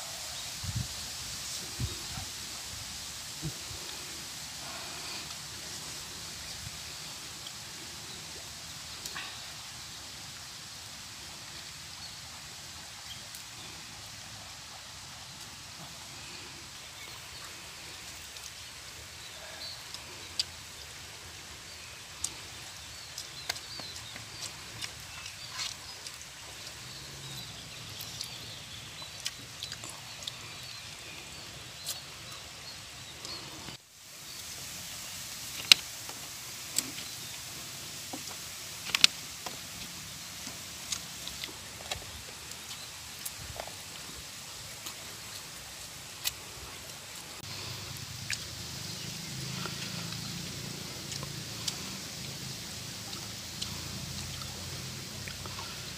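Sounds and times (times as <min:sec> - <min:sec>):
rocky stream rushing: 0:00.0 - 0:55.9
people eating with clicks and smacks: 0:22.1 - 0:31.2, 0:35.5 - 0:45.5, 0:46.1 - 0:55.9.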